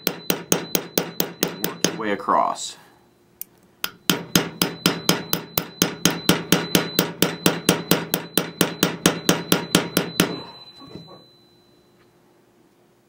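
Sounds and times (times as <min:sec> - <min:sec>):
thin high metallic ring: 0:03.9 - 0:12.1.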